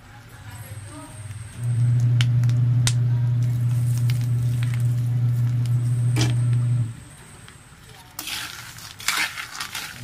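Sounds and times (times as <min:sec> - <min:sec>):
steady low hum: 0:00.1 - 0:08.1.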